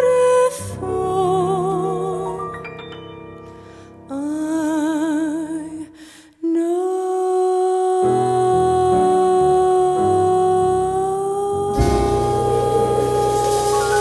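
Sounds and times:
long steady held note: 11.7s - 14.0s
low bass line: 11.7s - 14.0s
wavering held note: 11.7s - 14.0s.

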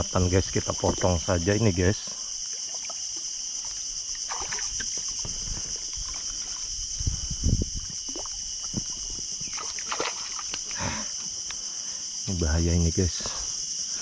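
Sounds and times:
high insect drone: 0.0s - 14.0s
water splashing and sloshing: 0.5s - 11.4s.

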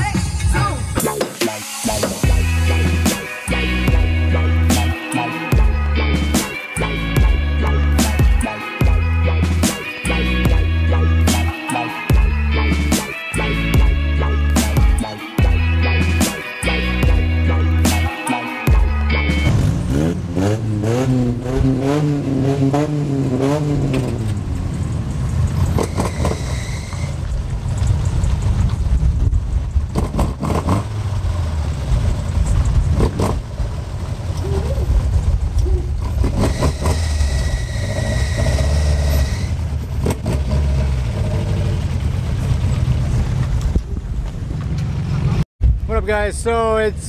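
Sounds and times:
engine revving: 0.0s - 28.6s, 29.9s - 43.8s
cars driving on wet pavement: 19.5s - 45.5s
high steady whine: 25.8s - 29.8s, 36.3s - 39.8s.

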